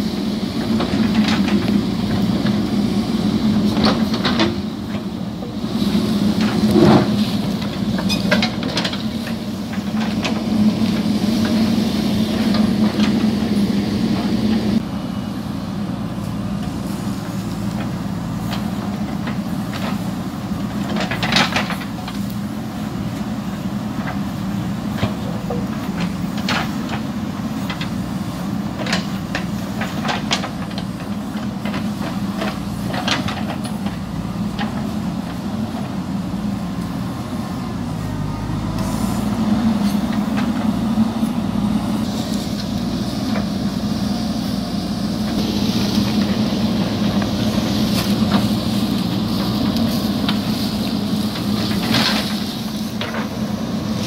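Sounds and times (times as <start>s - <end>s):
diesel engine under load: 0.0s - 54.0s.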